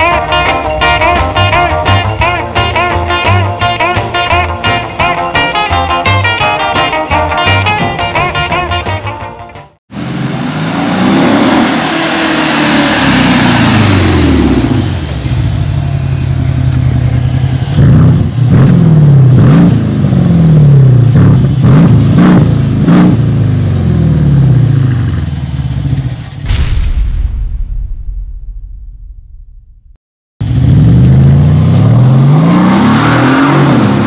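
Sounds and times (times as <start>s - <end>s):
low engine rumble: 0.0s - 5.2s, 11.8s - 31.9s
car engine revving: 0.0s - 5.6s, 9.9s - 26.4s, 30.4s - 34.0s
car accelerating past: 10.0s - 16.5s.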